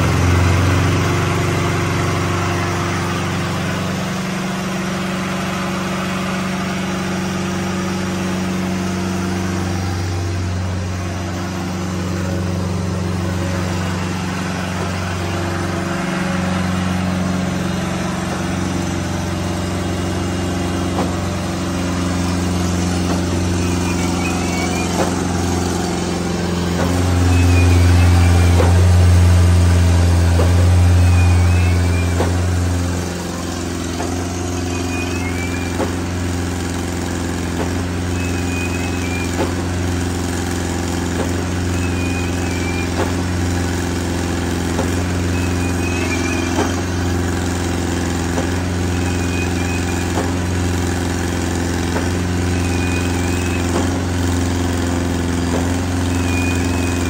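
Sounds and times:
concrete pump engine humming: 0.0 - 57.0
faint chirp: 23.3 - 26.1, 26.8 - 28.9, 30.8 - 32.5, 33.3 - 35.8, 38.1 - 39.5, 41.6 - 43.1, 45.2 - 47.2, 48.8 - 50.2, 52.5 - 53.8, 56.0 - 57.0.

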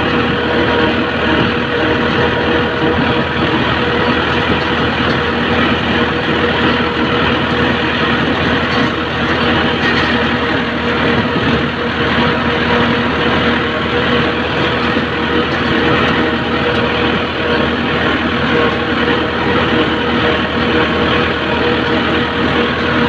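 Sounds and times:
tractor engine droning: 0.0 - 23.0.

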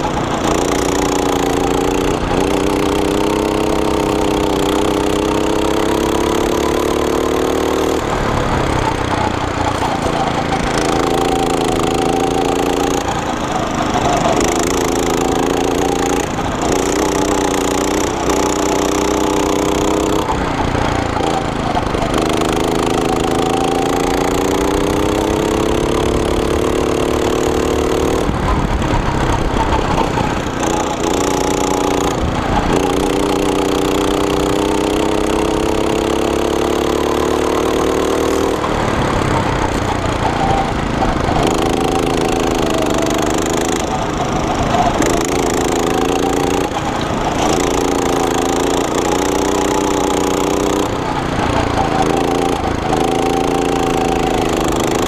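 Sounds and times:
go-kart engine revving: 0.0 - 55.0.

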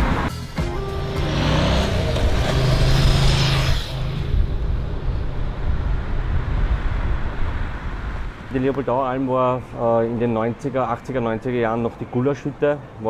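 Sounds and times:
steady traffic rumble: 0.0 - 13.0
vehicle passing close by: 1.1 - 8.6.

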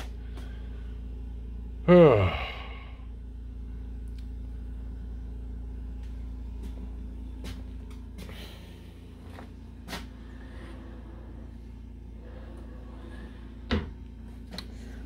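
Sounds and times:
steady low hum: 0.0 - 15.0
man sighing: 1.8 - 3.1.

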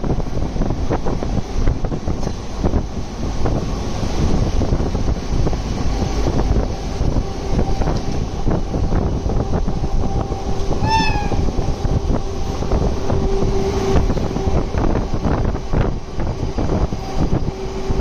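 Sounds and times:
steady train rumble: 0.0 - 18.0
train wheels clicking over rail joints: 0.0 - 18.0
wind on microphone: 0.0 - 18.0
short falling train toot: 10.7 - 11.7.

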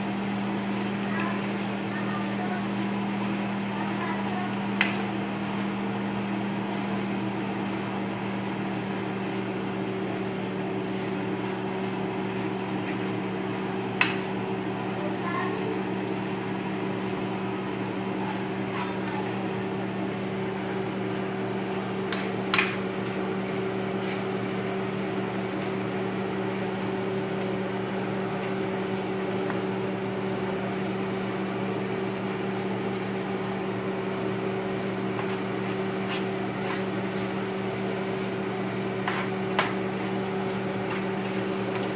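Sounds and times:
steady mechanical hum: 0.0 - 41.9.

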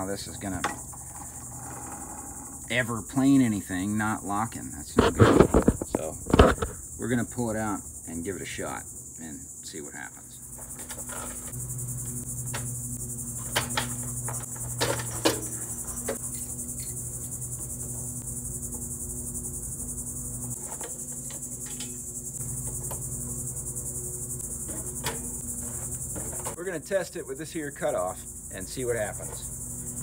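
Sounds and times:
insects buzzing: 0.0 - 30.0
knocks and clunks of machine: 13.4 - 16.3, 24.6 - 26.6.

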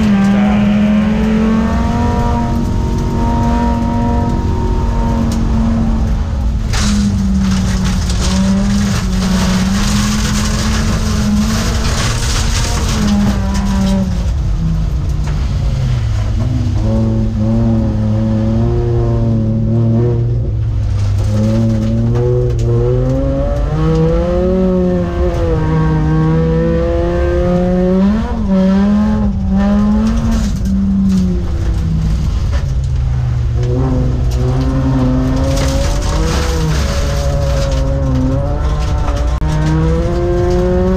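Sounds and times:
racing car engine revving: 0.0 - 40.9.

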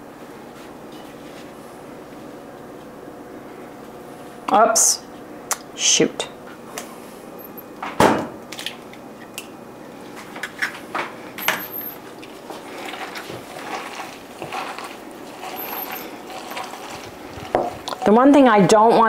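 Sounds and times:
hands squishing food mixture: 12.0 - 18.1.

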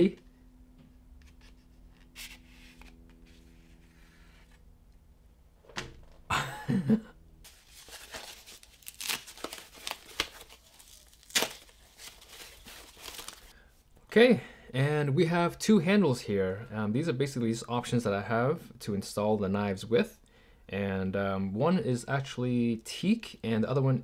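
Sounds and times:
paper crinkling and tearing: 7.5 - 13.5.

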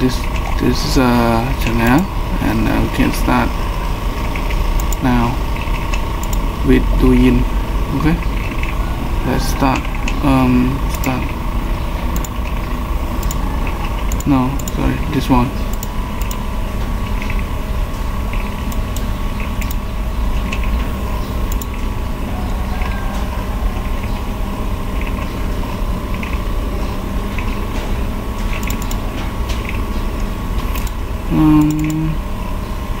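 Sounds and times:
electrical hum: 0.0 - 33.0
computer mouse clicks: 4.3 - 6.5, 10.9 - 11.3, 12.1 - 14.8, 15.7 - 16.4, 18.3 - 19.8, 21.5 - 21.9, 26.1 - 26.5, 28.5 - 29.8, 30.6 - 31.0, 31.6 - 32.0.

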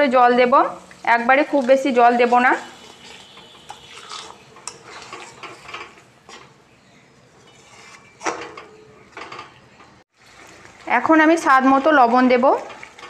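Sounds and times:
spatula scraping paste in pan: 2.6 - 6.0, 7.4 - 8.2.

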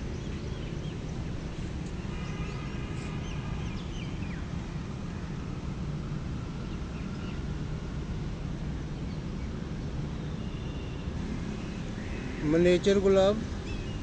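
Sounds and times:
birds chirping: 0.0 - 5.4, 8.8 - 14.0.

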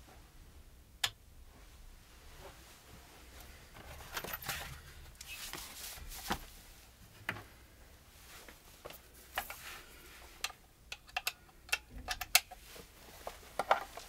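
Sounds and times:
guitar being picked up rustling: 2.3 - 6.6.

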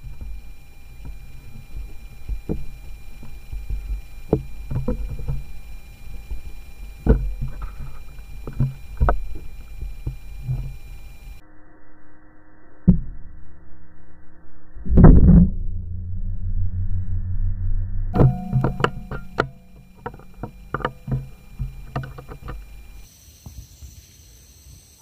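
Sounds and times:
handling knocks and thumps: 0.0 - 11.4, 18.2 - 23.0
low rumble: 14.4 - 23.0.

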